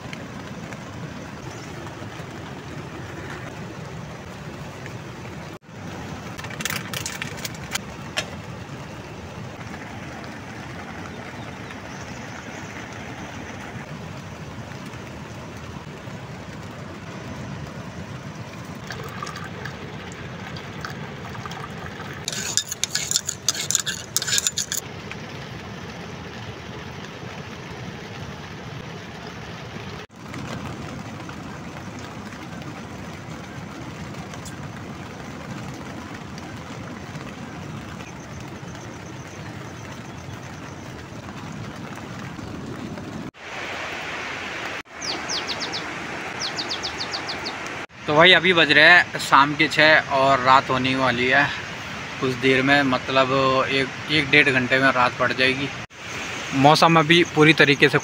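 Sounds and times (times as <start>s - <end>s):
fast river rushing: 0.0s - 25.4s, 26.2s - 58.0s
metal cookware clinking: 22.2s - 24.8s.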